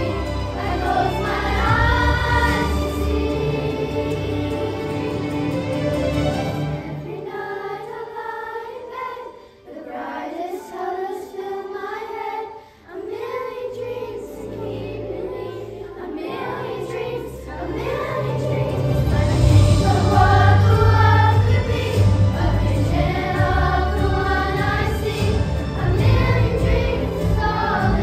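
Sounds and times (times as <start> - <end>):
low instrumental accompaniment: 0.0 - 7.5, 13.8 - 28.0
children's choir singing: 0.0 - 28.0.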